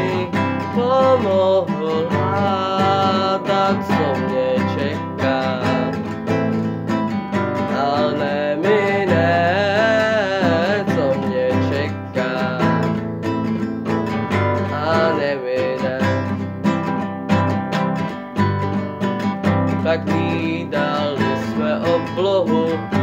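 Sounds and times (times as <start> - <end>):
wordless voice singing: 0.0 - 16.8, 19.7 - 23.0
nylon-string guitar strumming: 0.0 - 23.0.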